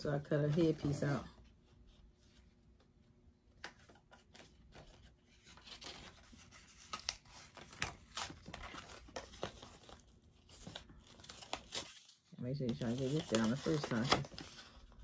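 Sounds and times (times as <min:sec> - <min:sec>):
paper rustling: 0:03.6 - 0:15.0
tape backing peeling crackles: 0:03.7 - 0:14.8.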